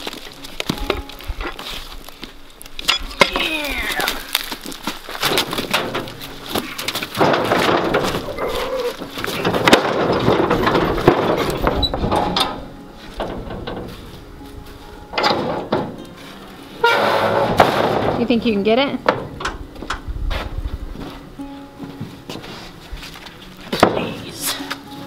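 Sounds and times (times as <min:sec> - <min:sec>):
wood scraping on metal: 0:04.3 - 0:19.7
wood knocking on metal: 0:05.2 - 0:14.2, 0:15.1 - 0:16.2, 0:16.8 - 0:20.0.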